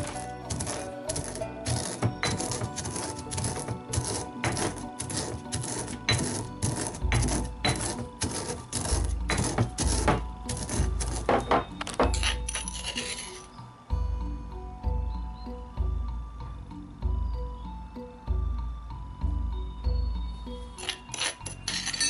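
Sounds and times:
stone pestle pounding in mortar: 0.0 - 12.3.

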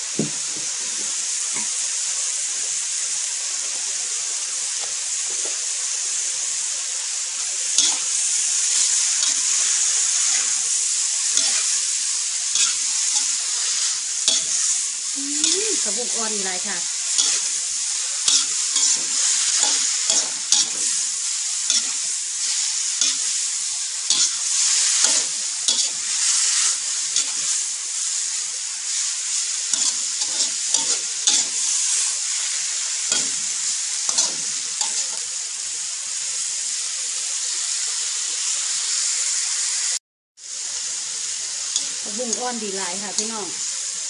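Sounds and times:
vegetables sizzling in a wok: 0.0 - 44.0
metal spatula scraping a pan: 7.7 - 16.2, 16.8 - 23.4, 24.0 - 27.6, 29.4 - 35.2.

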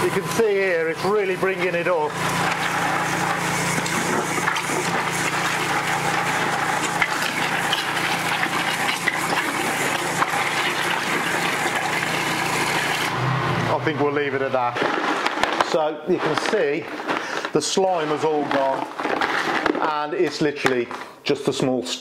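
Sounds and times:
gravel rattling through a tube: 0.1 - 13.0, 14.2 - 21.0
pressure washer water rushing hiss: 0.2 - 13.2.

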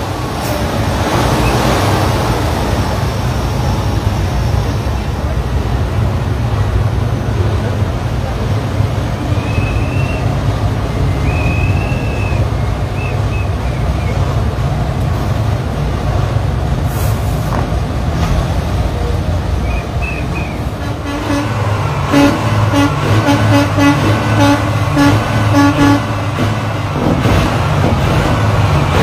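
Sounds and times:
diesel truck engines rumbling: 0.0 - 29.0
truck horn short toots: 20.8 - 26.1.

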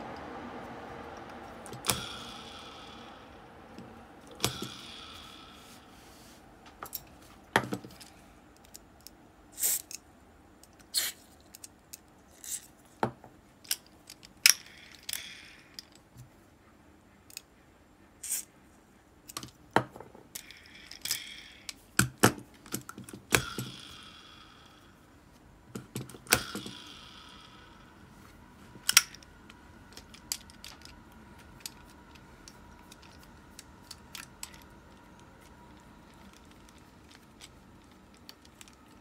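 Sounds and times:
metal reel parts clicking: 1.2 - 5.9, 10.6 - 12.8, 13.6 - 16.0, 20.3 - 25.0, 25.8 - 28.1, 28.8 - 39.0.

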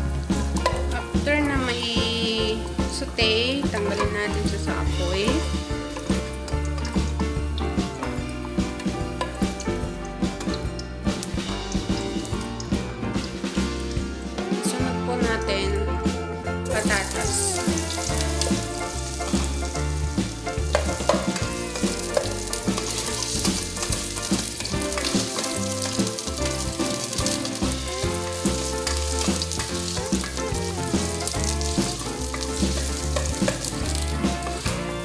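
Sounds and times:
potatoes sizzling in hot oil: 0.0 - 15.5, 16.6 - 35.0
background music with bass line: 0.0 - 35.0
spatula stirring: 2.6 - 9.6, 16.7 - 35.0.

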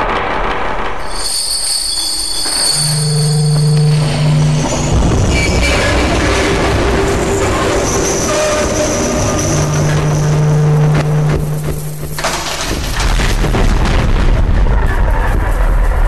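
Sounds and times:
distorted noise wash: 0.0 - 16.0
deep low rumble: 2.2 - 16.0
steady low hum: 2.4 - 14.0.

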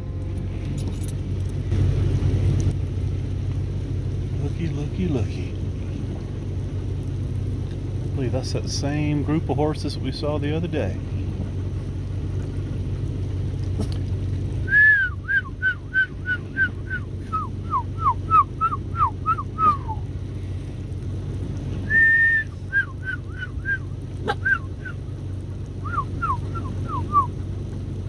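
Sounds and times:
vehicle engine idling: 0.0 - 28.0
small dog whining: 24.2 - 24.7.

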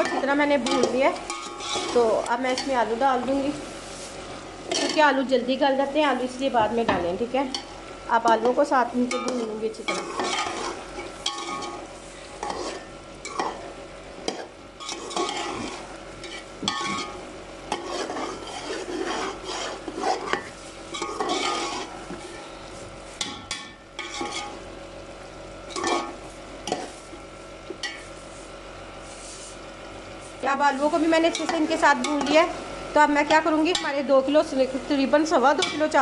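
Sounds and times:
metal spoon scraping pot: 0.0 - 3.4, 4.7 - 5.2, 8.3 - 11.8, 12.4 - 13.7, 14.3 - 22.0, 23.5 - 24.6, 25.7 - 26.9, 35.5 - 36.0
oil sizzling: 0.0 - 36.0.

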